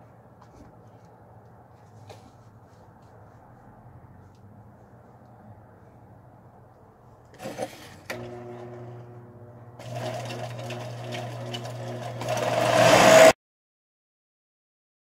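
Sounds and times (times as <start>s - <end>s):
electric motor humming: 8.1s - 13.4s
steel grinding on sanding belt: 9.9s - 13.3s.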